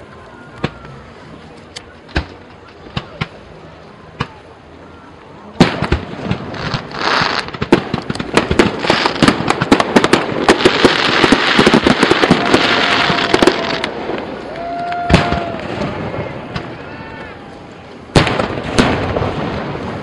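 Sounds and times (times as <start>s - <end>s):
fireworks bangs and crackling: 1.9s - 4.6s, 5.5s - 20.0s
fireworks hiss: 5.6s - 14.5s
fireworks whistle: 10.5s - 17.3s.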